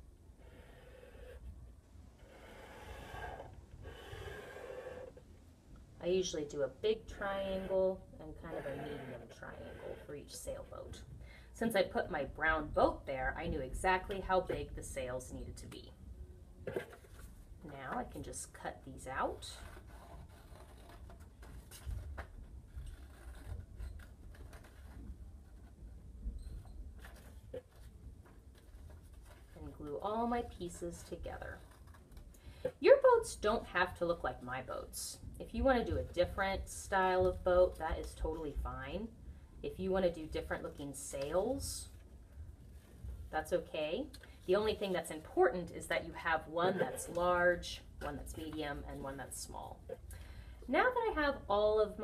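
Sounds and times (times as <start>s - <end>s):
marker drawing on paper: 2.2s - 5.2s.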